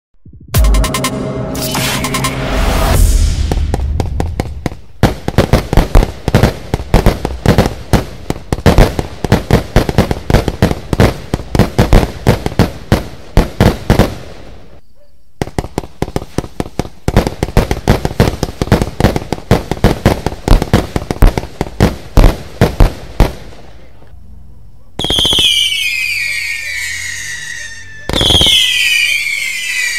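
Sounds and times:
fireworks bangs: 0:00.5 - 0:14.8, 0:15.4 - 0:24.0, 0:25.0 - 0:29.9.

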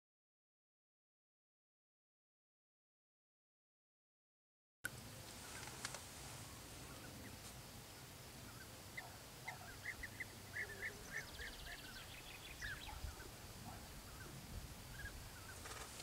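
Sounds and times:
bee-eaters calling: 0:05.4 - 0:16.0.

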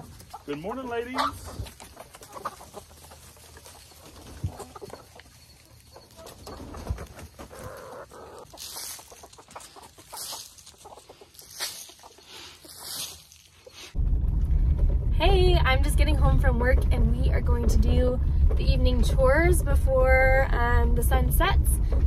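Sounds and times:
hens clucking: 0:00.0 - 0:14.0
short rustling: 0:08.4 - 0:14.0.

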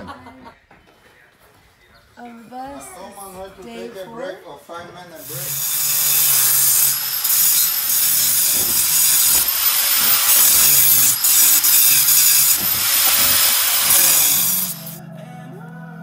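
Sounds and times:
angle grinder cutting metal: 0:05.2 - 0:15.0.

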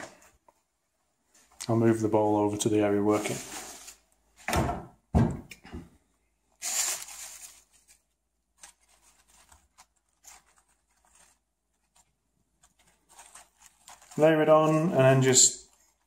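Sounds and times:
newspaper rustling and crinkling: 0:01.3 - 0:04.3, 0:06.5 - 0:16.0.

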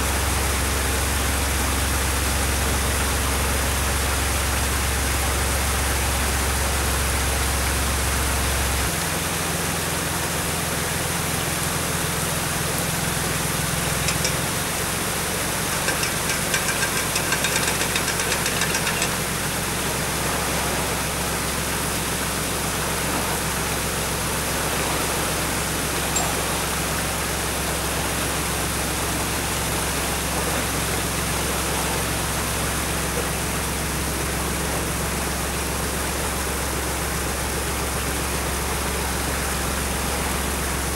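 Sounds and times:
boat engine running: 0:00.0 - 0:40.9
wind: 0:00.0 - 0:40.9
rapid rattle: 0:13.8 - 0:19.6.

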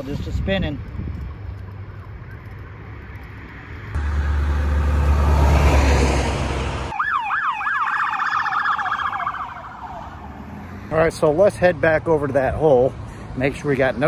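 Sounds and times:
passing traffic rumble: 0:00.0 - 0:14.0
police siren wailing: 0:06.8 - 0:10.2.

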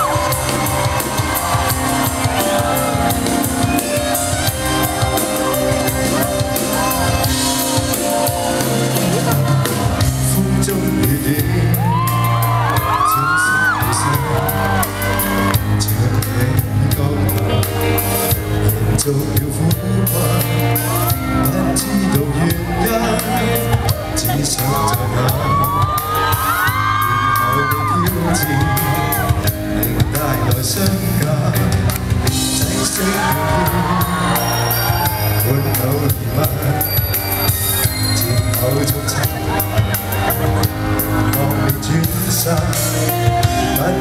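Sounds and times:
audience shouts and whoops: 0:00.0 - 0:10.5, 0:11.3 - 0:16.0, 0:20.6 - 0:29.6, 0:32.5 - 0:44.0
live pop band music: 0:00.0 - 0:44.0.

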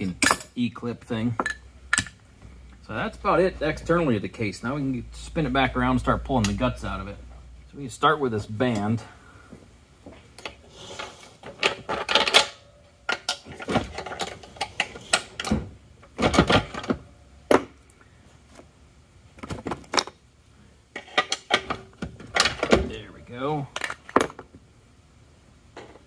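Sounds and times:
metal parts and tools clinking: 0:10.4 - 0:15.6.

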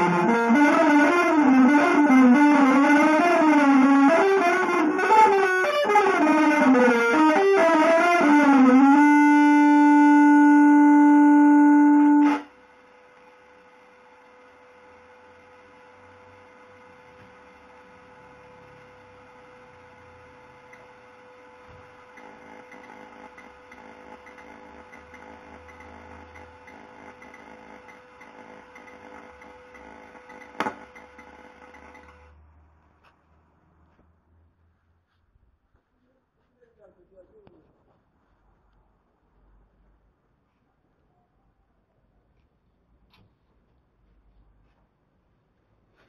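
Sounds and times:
electric guitar sustained note: 0:00.0 - 0:12.6.

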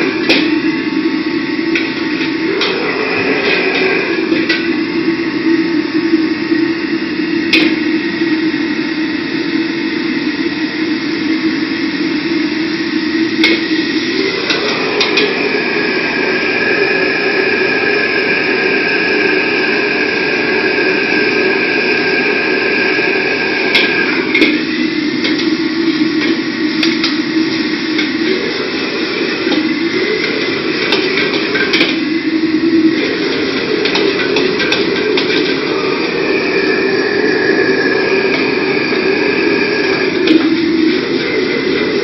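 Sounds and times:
gas burner and fan roaring: 0:00.0 - 0:42.0
metal clanks: 0:23.7 - 0:32.1, 0:32.9 - 0:36.5.

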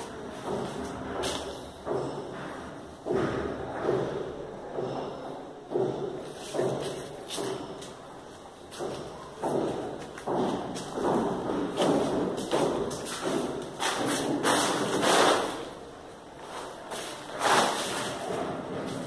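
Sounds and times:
footsteps on plastic sheeting: 0:05.8 - 0:19.0.

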